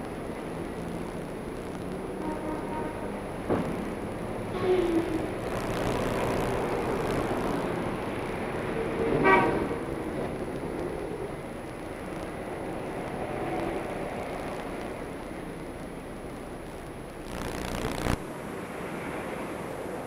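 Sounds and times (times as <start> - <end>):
city street traffic: 0.0 - 20.0
short vehicle horn toot: 9.2 - 9.7.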